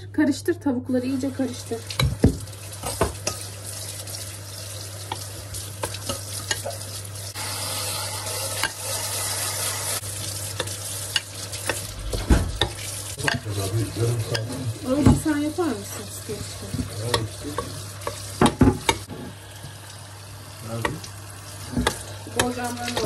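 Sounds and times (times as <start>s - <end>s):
tap water splashing: 1.8s - 6.8s, 10.5s - 13.6s, 14.3s - 15.4s, 16.3s - 20.0s, 20.7s - 23.0s.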